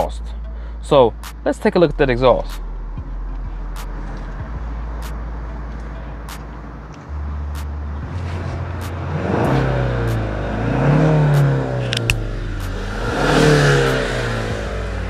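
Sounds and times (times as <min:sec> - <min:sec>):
car engine idling and revving: 0:00.0 - 0:15.0
sharp clicks: 0:11.3 - 0:12.8.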